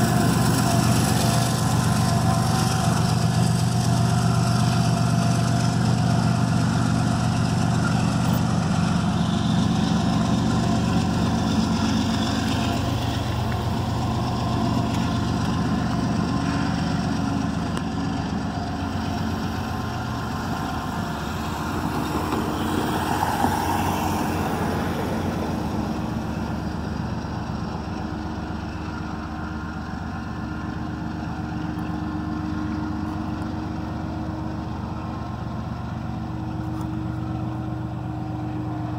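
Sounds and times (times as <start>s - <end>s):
diesel locomotive engine drone: 0.0s - 38.9s.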